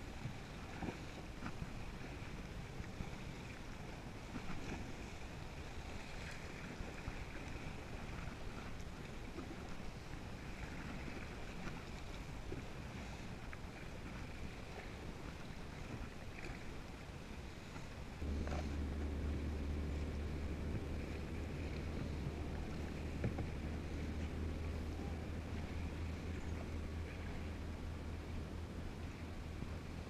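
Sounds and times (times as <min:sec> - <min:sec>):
paddle splashing: 0:00.0 - 0:30.0
steady low rumble: 0:18.0 - 0:30.0
water slapping plastic hull: 0:18.2 - 0:27.5
wind on microphone: 0:18.2 - 0:30.0.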